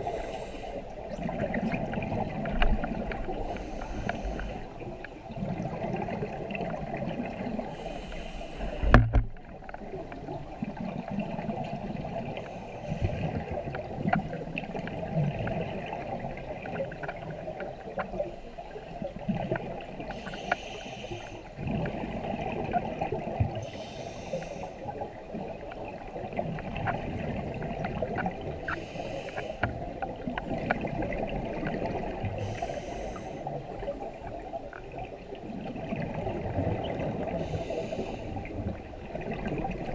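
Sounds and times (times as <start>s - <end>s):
exhaled bubbles hissing and gurgling: 0.0s - 39.9s
muffled water rumble: 0.0s - 39.9s.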